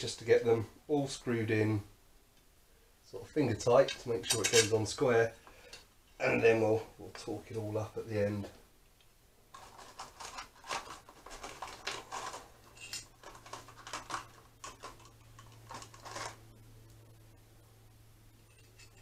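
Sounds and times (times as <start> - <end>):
screws rattling in plastic tub: 9.5 - 16.4.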